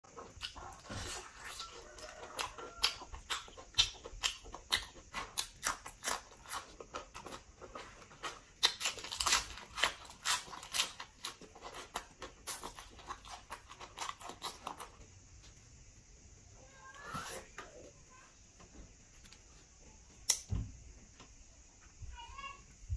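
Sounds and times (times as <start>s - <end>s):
chewing with mouth clicks and crunches: 0.0s - 15.1s.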